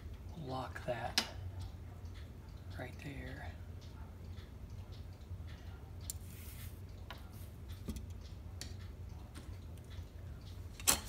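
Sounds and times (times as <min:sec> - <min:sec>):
tools clicking and tapping: 0:01.2 - 0:11.0
scratchy rustle: 0:06.2 - 0:06.8.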